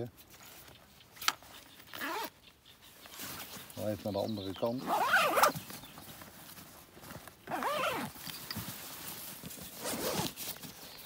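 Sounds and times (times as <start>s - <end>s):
backpack rustling and handling: 0.2s - 2.4s, 4.8s - 11.0s.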